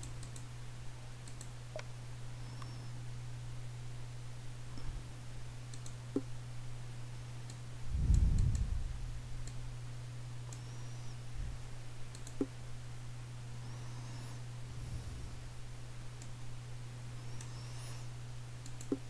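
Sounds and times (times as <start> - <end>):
computer mouse clicking: 0.0 - 0.5, 1.2 - 1.9, 5.7 - 6.3, 12.1 - 12.5, 18.6 - 19.0
low electrical hum: 0.0 - 19.0.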